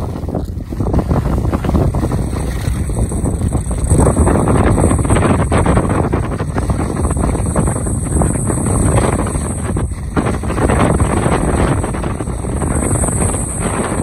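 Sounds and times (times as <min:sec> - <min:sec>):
skis scraping over packed snow: 0:00.0 - 0:14.0
wind buffeting microphone: 0:00.0 - 0:14.0.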